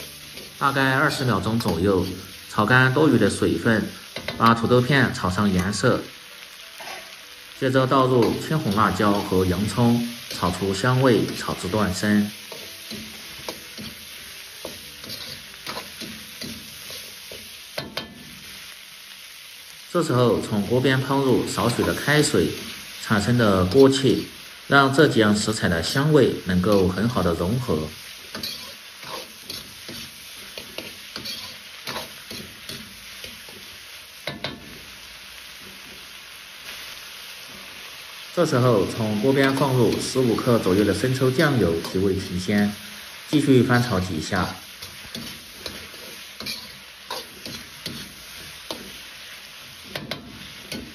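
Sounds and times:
metal spatula scraping wok: 0.0s - 2.4s, 8.2s - 18.5s, 25.8s - 34.8s, 39.0s - 42.3s, 43.8s - 50.9s
vegetables sizzling in a wok: 0.0s - 50.9s
metal ladle scraping wok: 14.8s - 18.1s, 28.3s - 33.5s, 44.8s - 49.1s.

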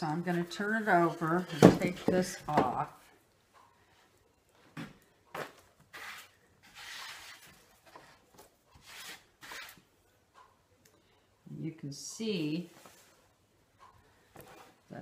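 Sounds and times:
fabric and padding rustling and scraping: 0.0s - 3.1s, 4.0s - 10.6s, 12.5s - 15.0s.

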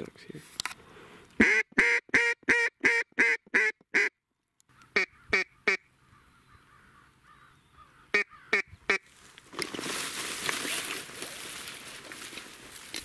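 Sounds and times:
duck call quacks: 1.4s - 4.1s, 4.9s - 5.9s, 8.1s - 9.1s.

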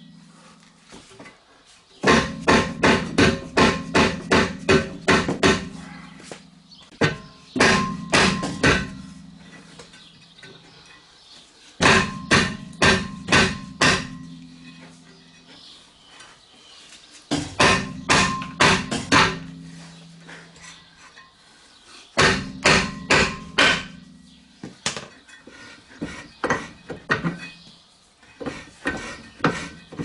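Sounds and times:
hammer striking metal rotor: 7.0s - 9.3s, 11.8s - 14.8s, 17.4s - 19.8s, 22.2s - 24.3s
metal disc ringing: 7.1s - 10.2s, 11.8s - 15.5s.

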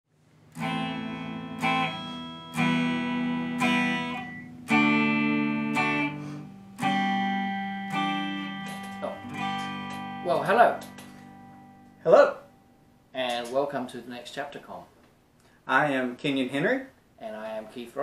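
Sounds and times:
strummed guitar chords: 0.5s - 13.0s.

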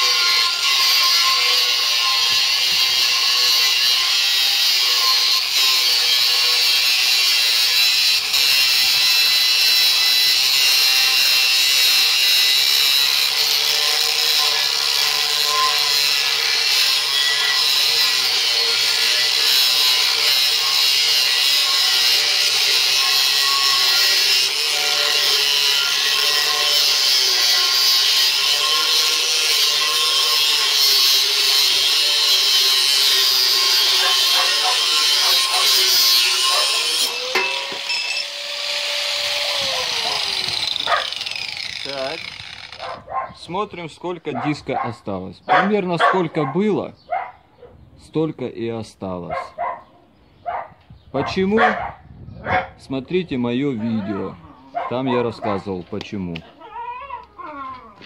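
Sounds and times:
angle grinder cutting steel: 0.0s - 44.9s.

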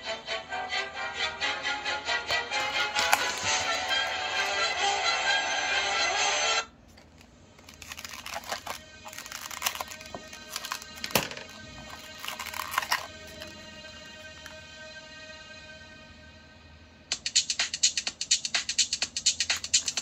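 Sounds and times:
loud music: 0.0s - 6.0s
plastic blister pack crackling: 2.5s - 4.7s, 6.9s - 13.6s, 19.4s - 20.0s.

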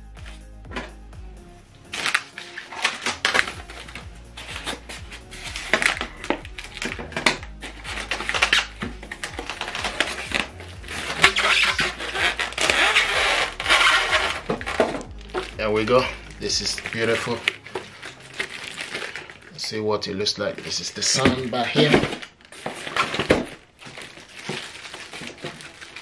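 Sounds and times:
cardboard scraping on styrofoam: 1.9s - 19.4s
plastic rustling: 1.9s - 26.0s.

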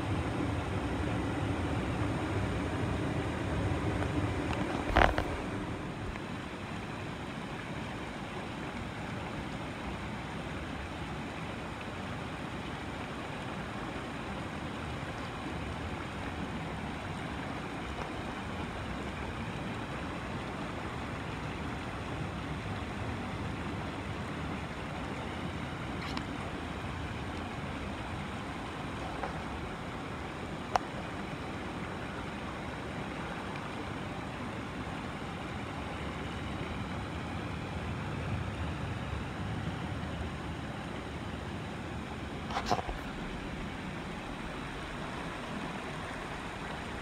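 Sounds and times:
brook running over rocks: 0.0s - 47.0s
stream flowing: 0.0s - 47.0s.

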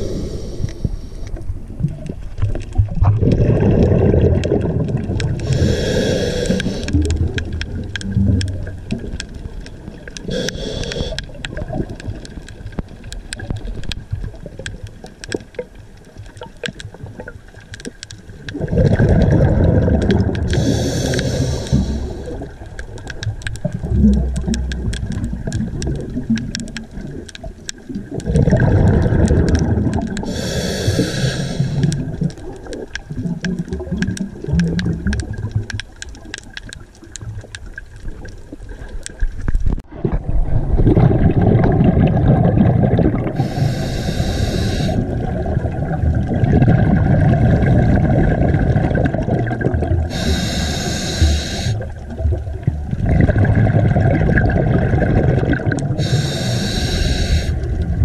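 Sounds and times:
hissing regulator inhales: 0.0s - 1.3s, 5.4s - 7.0s, 10.3s - 11.3s, 20.5s - 22.4s, 30.2s - 32.0s, 43.4s - 45.1s, 50.1s - 51.8s, 56.0s - 57.7s
faint clicks: 0.0s - 3.4s, 4.4s - 18.6s, 19.9s - 39.8s, 50.1s - 52.1s, 55.6s - 57.9s
bubbling exhales: 2.9s - 9.1s, 18.5s - 22.7s, 23.6s - 27.2s, 27.9s - 35.6s, 39.9s - 58.0s.

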